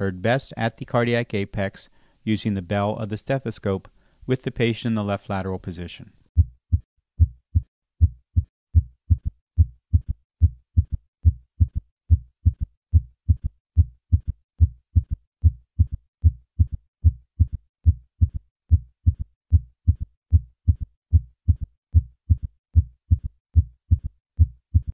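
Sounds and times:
heartbeat thuds: 6.4 - 24.9.

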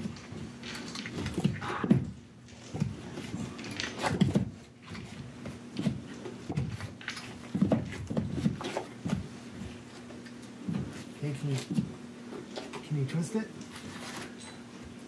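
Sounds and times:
knocks and rubbing on wood: 1.1 - 12.0.

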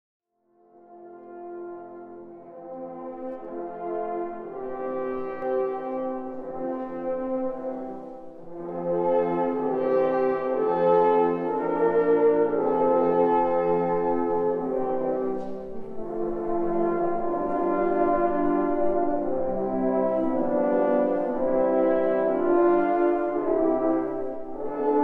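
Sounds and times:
brass ensemble playing chords: 0.6 - 25.0.

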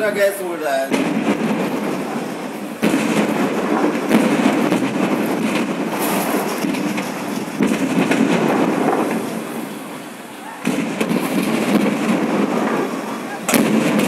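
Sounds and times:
fire rushing: 0.0 - 14.0
gas cylinders bursting: 0.0 - 14.0.

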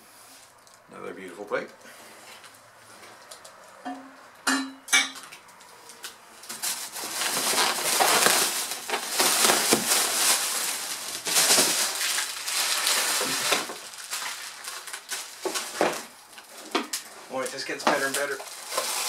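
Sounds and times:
bubble wrap crinkling: 5.9 - 19.0.

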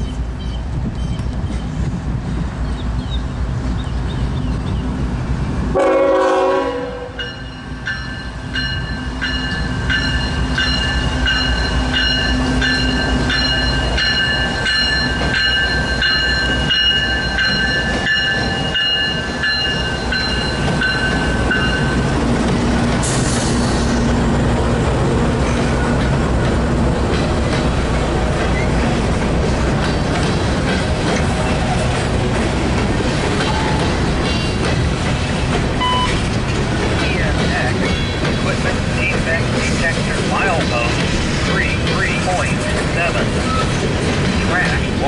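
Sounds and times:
diesel engines rumbling: 0.0 - 45.0
train wheels on rails: 0.0 - 45.0
train horn blast: 5.7 - 7.3
locomotive bell ringing: 7.1 - 22.2.

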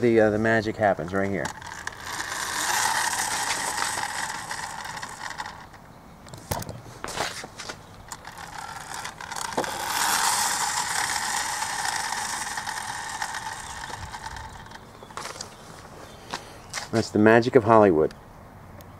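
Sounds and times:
toy friction motor whirring: 0.6 - 15.9
toy clicks: 1.1 - 6.7, 8.0 - 15.6.

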